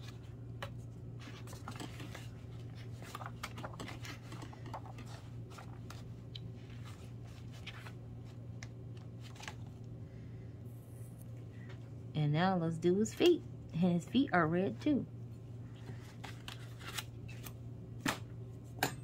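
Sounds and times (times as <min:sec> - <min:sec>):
paper pages rustling: 0:00.0 - 0:09.9, 0:15.8 - 0:17.6
steady low hum: 0:00.0 - 0:19.0.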